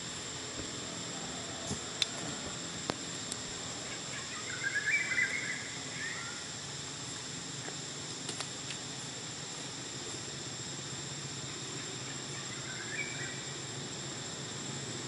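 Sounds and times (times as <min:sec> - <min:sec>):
steady background hiss: 0:00.0 - 0:15.0
high wavering chirping calls: 0:00.8 - 0:07.3, 0:11.4 - 0:14.2.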